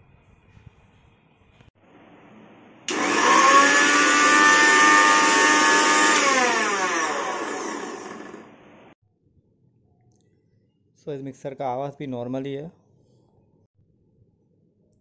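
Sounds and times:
mixer grinder motor whine: 2.9 - 9.0.

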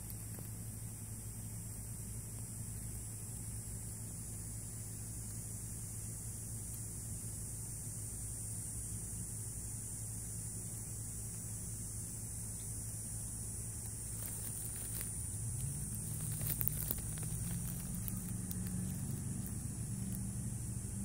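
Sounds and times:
high-pitched hiss: 0.0 - 21.0
steady low hum: 0.0 - 21.0.

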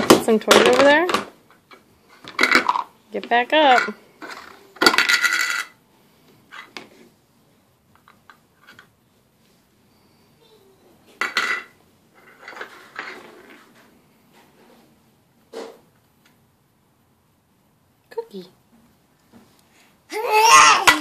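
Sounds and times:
toy metal dishes clattering: 2.2 - 5.8.

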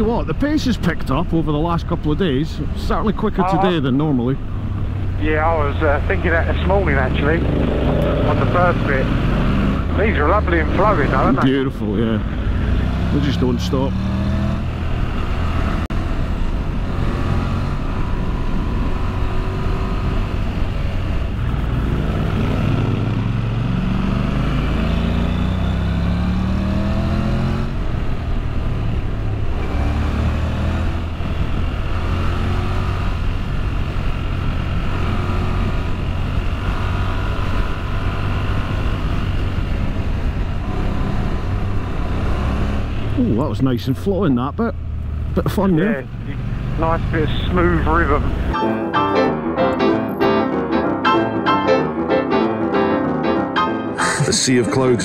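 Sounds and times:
motorcycle engine accelerating: 1.9 - 43.6.

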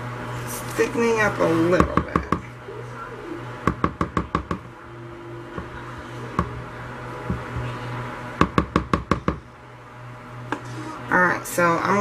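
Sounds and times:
low steady hum: 0.0 - 12.0
spatula knocking plastic bowl: 8.4 - 9.4.

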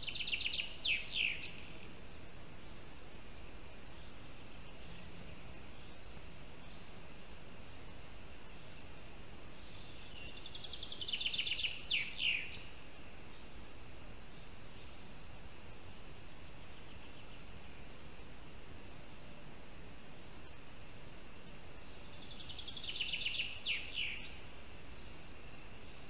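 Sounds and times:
thin high bird calls: 0.0 - 1.9, 8.5 - 15.2, 21.6 - 26.0
songbird trill: 0.0 - 19.2, 19.9 - 26.0
microphone hiss: 0.0 - 26.0.

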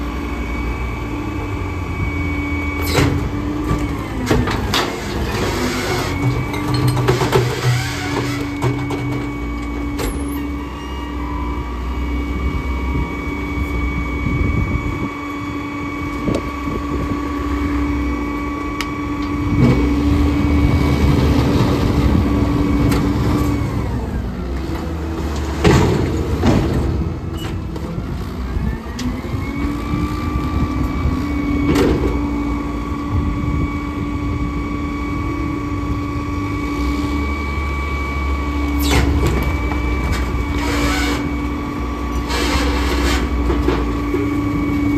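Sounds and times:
diesel engines running: 0.0 - 44.9
mechanical whine: 0.0 - 44.9
debris dumping with loud clatter: 3.0 - 9.6.

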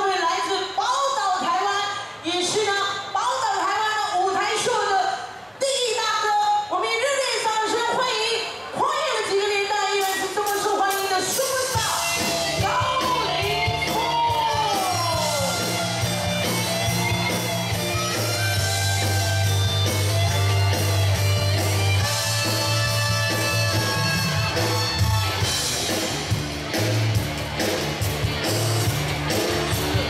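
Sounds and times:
live rock band playing: 11.3 - 30.0
electric guitar: 11.7 - 30.0
heavy bass line: 11.8 - 30.0.

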